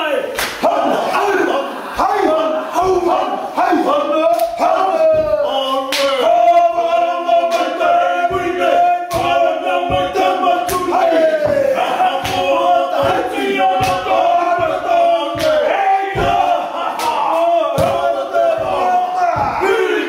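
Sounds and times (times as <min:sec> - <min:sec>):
men chanting in unison: 0:00.0 - 0:20.0
sharp percussive hits: 0:09.1 - 0:19.7.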